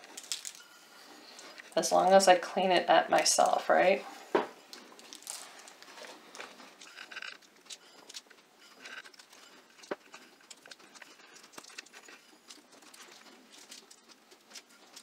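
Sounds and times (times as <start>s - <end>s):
sugar crystals pattering: 0.0s - 2.4s, 4.9s - 6.1s.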